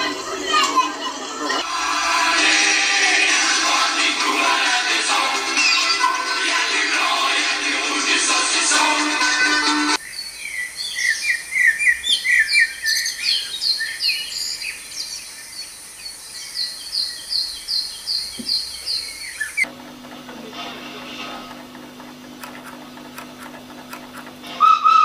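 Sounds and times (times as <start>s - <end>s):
background music: 0.0s - 10.0s
birds chirping: 10.0s - 19.7s.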